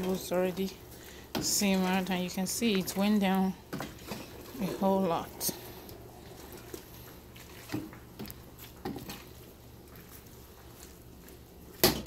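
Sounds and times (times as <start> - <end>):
steady low hum: 0.0 - 12.0
spoon stirring thick soup: 5.4 - 9.5.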